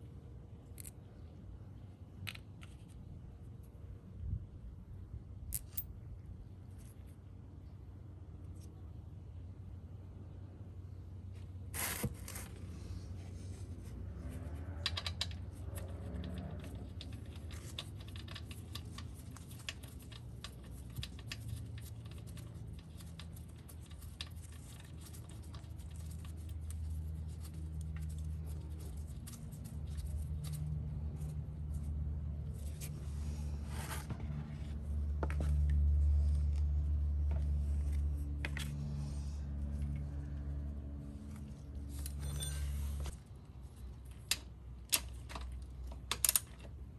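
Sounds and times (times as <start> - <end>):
small clicks and scrapes of tools: 0.6 - 1.3, 11.8 - 40.6.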